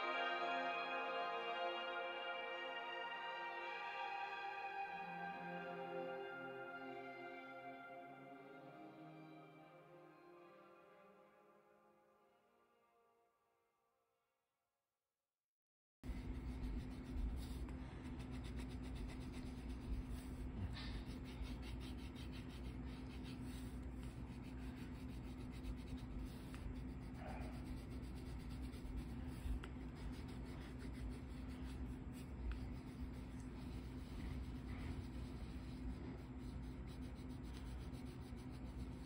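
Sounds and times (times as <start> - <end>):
pencil scratching on paper: 16.0 - 39.0
low hum: 16.1 - 39.0.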